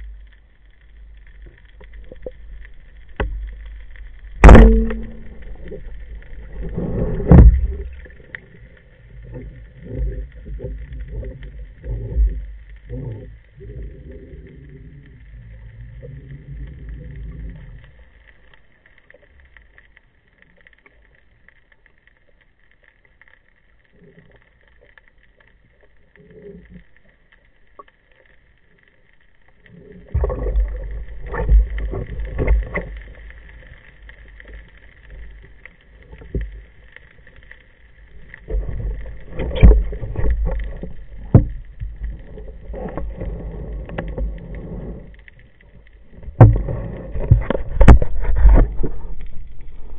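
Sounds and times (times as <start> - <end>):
faint steady whine: 0.0 - 49.9
muffled underwater thumps and knocks: 4.4 - 8.5, 30.1 - 33.6, 38.3 - 45.1, 46.1 - 49.9.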